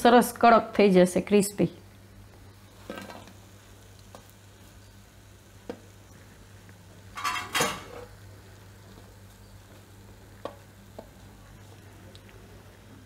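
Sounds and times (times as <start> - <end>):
snacks clattering onto steel plate: 7.2 - 8.0.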